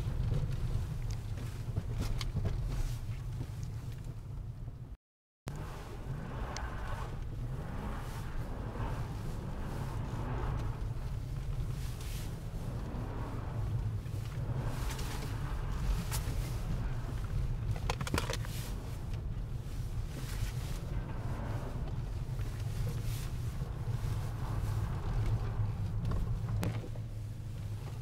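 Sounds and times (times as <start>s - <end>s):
car engine and tyre drone: 0.0s - 4.5s, 5.5s - 28.0s.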